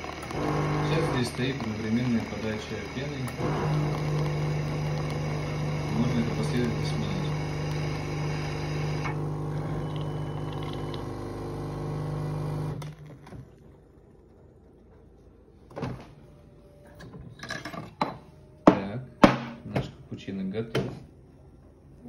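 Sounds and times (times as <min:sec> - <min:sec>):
coffee machine humming: 0:00.0 - 0:14.8.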